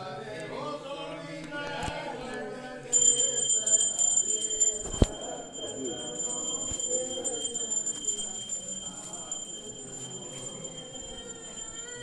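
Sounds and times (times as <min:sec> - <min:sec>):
murmur of voices: 0:00.0 - 0:12.0
temple bells ringing: 0:03.0 - 0:12.0.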